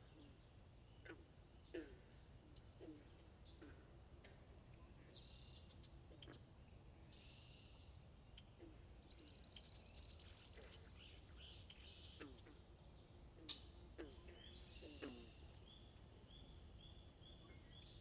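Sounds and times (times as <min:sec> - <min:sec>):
birds chirping and trilling: 0:09.1 - 0:18.0.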